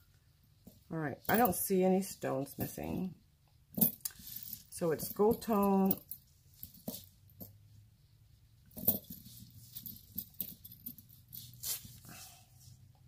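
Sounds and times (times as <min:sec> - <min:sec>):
chain necklace clicking and rustling: 0:00.6 - 0:01.8, 0:03.7 - 0:07.7, 0:08.6 - 0:12.1.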